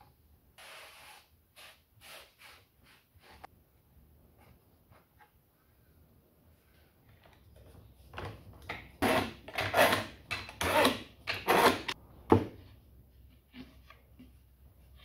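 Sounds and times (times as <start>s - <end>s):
wood and clamps scraping: 9.0s - 12.0s.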